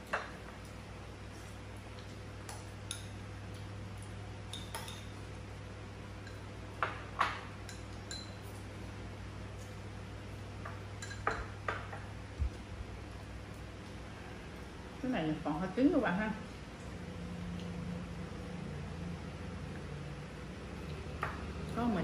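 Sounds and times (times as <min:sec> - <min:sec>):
steady low hum: 0:00.0 - 0:22.0
chopsticks clinking on porcelain bowls: 0:01.9 - 0:05.2, 0:06.2 - 0:08.6, 0:10.6 - 0:12.1.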